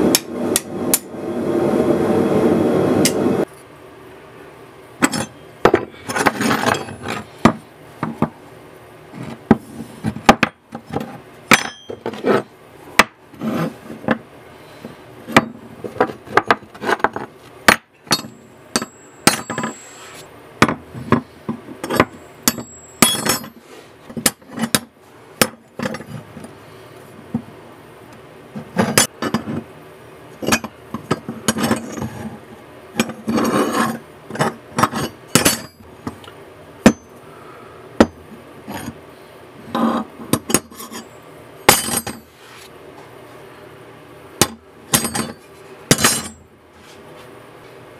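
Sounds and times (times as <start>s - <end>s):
metal ringing high tone: 11.6s - 12.1s, 18.1s - 20.0s, 22.4s - 23.5s.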